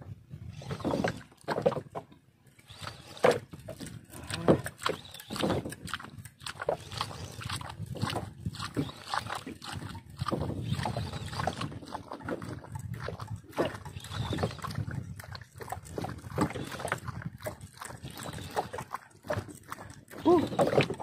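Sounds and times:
rumble of wind and water: 0:00.0 - 0:21.0.

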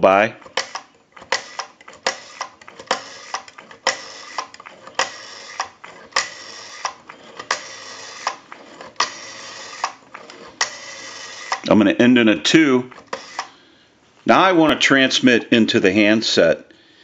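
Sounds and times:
rotary dial whirring back: 0:00.3 - 0:13.7
rotary dial clicks: 0:00.4 - 0:11.7, 0:12.9 - 0:13.6.

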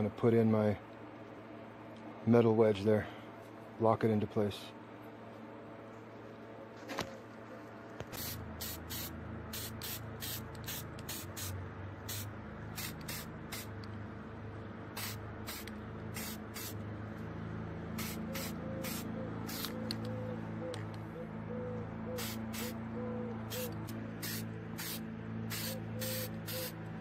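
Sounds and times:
spray-paint can hissing: 0:08.2 - 0:13.8, 0:15.0 - 0:16.8, 0:18.0 - 0:19.8, 0:22.2 - 0:22.8, 0:23.5 - 0:26.8.

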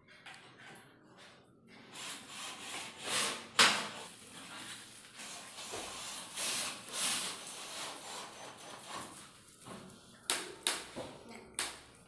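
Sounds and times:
scraping and rubbing: 0:04.0 - 0:09.5.

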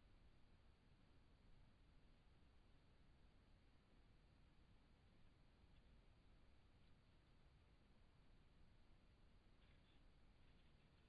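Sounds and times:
faint recording hiss: 0:00.0 - 0:11.0.

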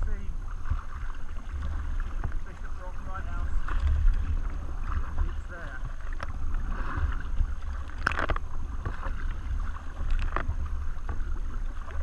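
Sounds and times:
paddle splashing in water: 0:00.0 - 0:12.0
wind rumble on microphone: 0:00.0 - 0:12.0.

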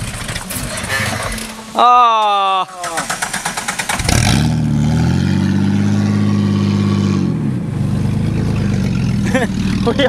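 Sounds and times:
car engine revving: 0:02.6 - 0:10.0.

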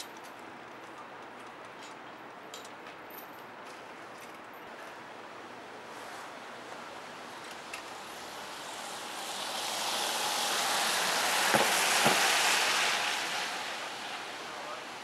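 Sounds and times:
car tyres hissing past: 0:07.0 - 0:15.0.

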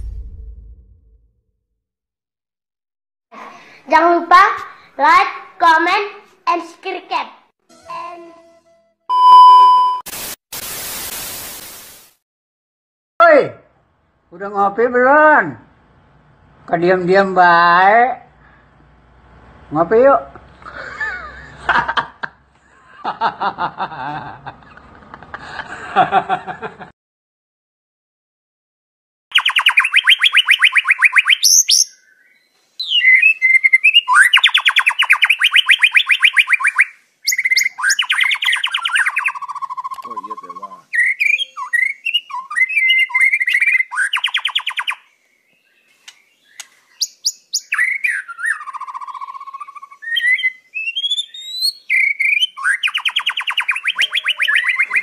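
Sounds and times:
person chuckling: 0:20.6 - 0:26.9
songbird whistling and trilling: 0:29.3 - 0:45.1, 0:46.4 - 0:55.0.

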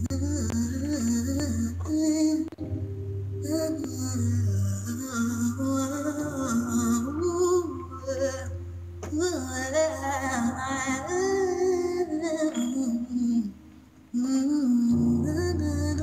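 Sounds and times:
held low backing notes: 0:00.0 - 0:16.0
woman singing wordless lines: 0:03.4 - 0:16.0.

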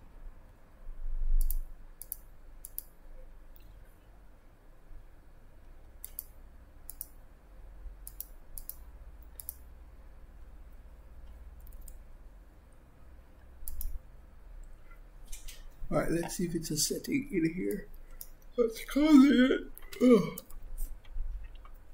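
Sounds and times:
faint low hum: 0:00.0 - 0:21.9
computer mouse clicks: 0:01.4 - 0:03.8, 0:06.0 - 0:07.2, 0:08.0 - 0:09.7, 0:11.2 - 0:12.1, 0:13.4 - 0:14.0, 0:17.7 - 0:18.5.

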